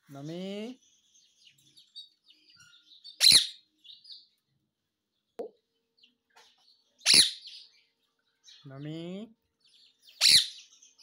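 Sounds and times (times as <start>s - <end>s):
parakeet shrill squawks: 3.1s - 3.6s, 7.0s - 7.6s, 10.2s - 10.6s
soft bird chirps and clicks: 5.3s - 8.6s.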